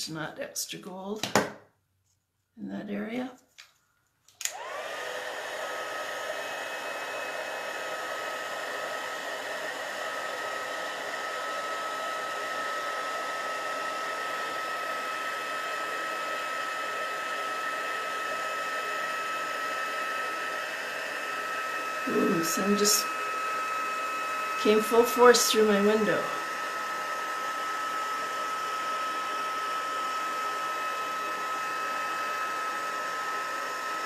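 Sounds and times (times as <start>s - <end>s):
heat tool fan motor whine: 4.4s - 34.0s
rush of blowing air: 19.9s - 27.5s.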